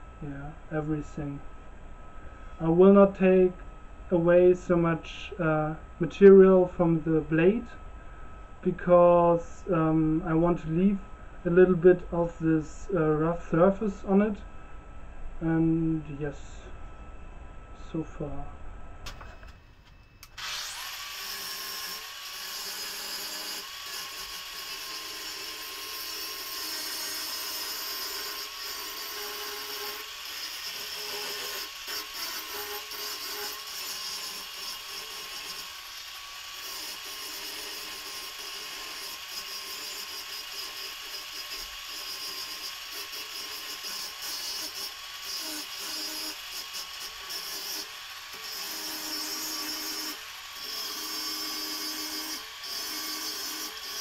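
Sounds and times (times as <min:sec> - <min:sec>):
angle grinder grinding steel: 0:19.9 - 0:54.0.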